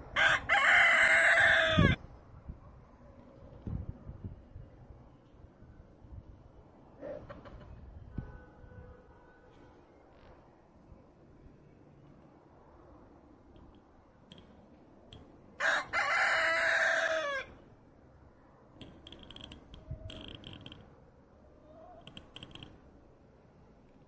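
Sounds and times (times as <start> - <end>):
rooster crowing: 0.1 - 2.0, 15.6 - 17.6.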